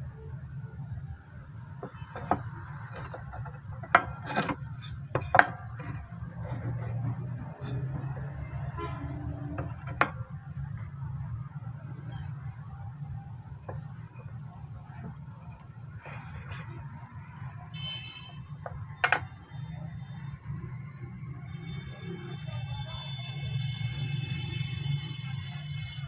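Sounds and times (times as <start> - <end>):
wood clacking on metal: 1.8 - 8.4, 9.3 - 17.5, 18.5 - 19.7.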